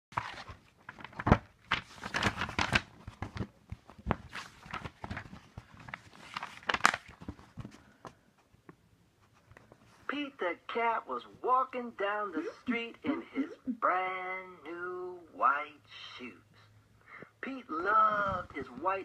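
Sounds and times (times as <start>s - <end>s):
book opening: 0.1s - 7.8s.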